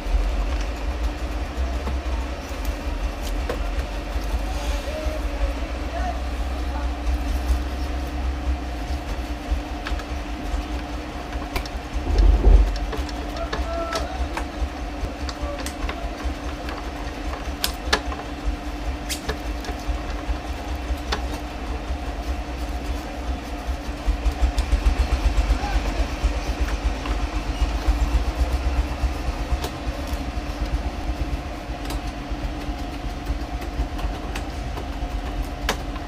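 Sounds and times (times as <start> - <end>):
steady low hum: 0.0 - 36.0
rough rattle: 11.7 - 13.2.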